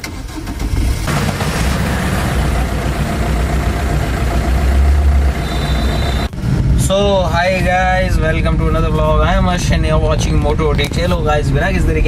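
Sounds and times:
diesel engine starting and idling: 0.0s - 6.6s.

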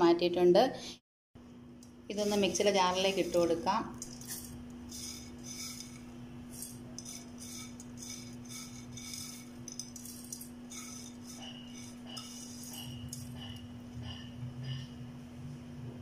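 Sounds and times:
steady low hum: 1.4s - 16.0s
spoon scraping metal jar: 2.1s - 14.3s.

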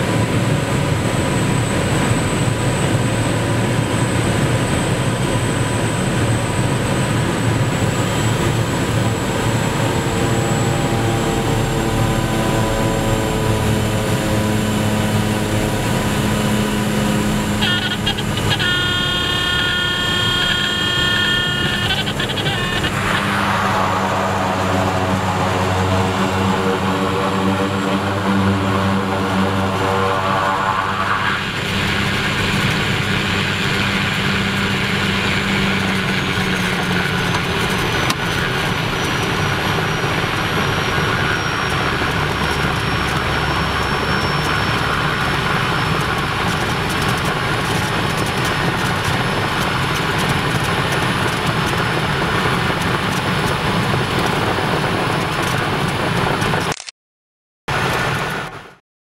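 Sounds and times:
propeller aircraft engine drone: 0.0s - 56.9s, 57.7s - 58.8s
high whine falling in pitch: 5.0s - 36.3s.

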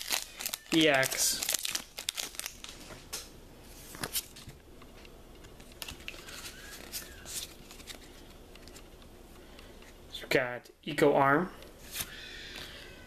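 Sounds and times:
foil wrapper crinkling: 0.0s - 2.9s, 5.6s - 8.8s.

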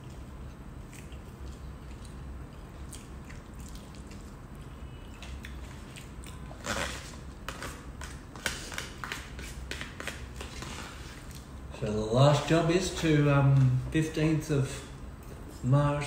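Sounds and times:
chewing and biting: 0.0s - 7.1s.

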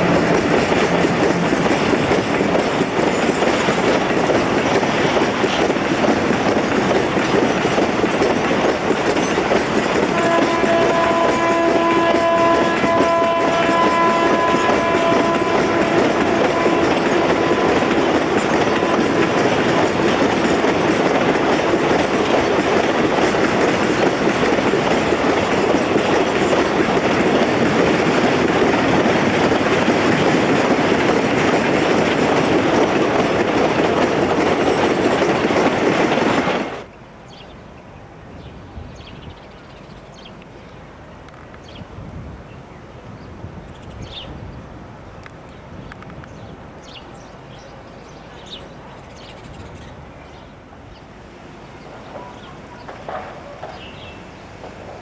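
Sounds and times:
train wheels on rails: 0.0s - 37.5s, 38.2s - 55.0s
train horn: 10.0s - 19.7s.

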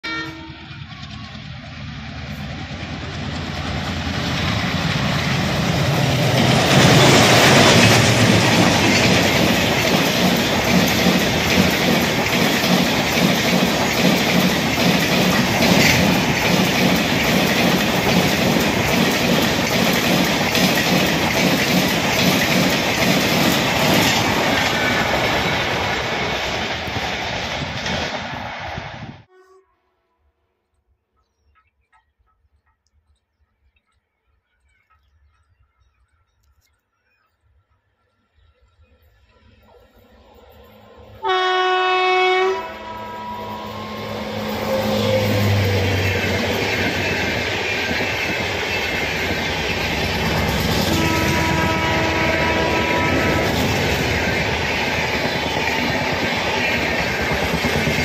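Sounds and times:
electric locomotive passing: 0.0s - 29.4s, 37.6s - 58.0s
train wheels clattering over rail joints: 3.1s - 28.3s.

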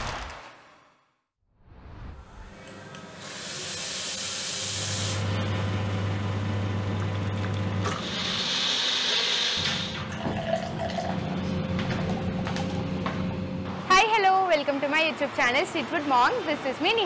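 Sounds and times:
espresso machine hiss: 3.2s - 5.5s, 7.8s - 10.1s
espresso pump humming: 5.1s - 11.5s.

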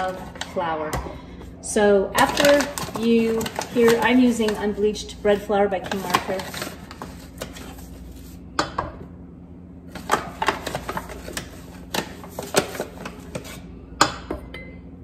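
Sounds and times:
paper bag rustling: 2.2s - 8.4s.

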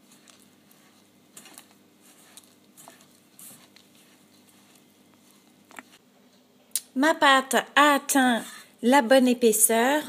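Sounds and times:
hands kneading dough in bowl: 0.0s - 6.0s.

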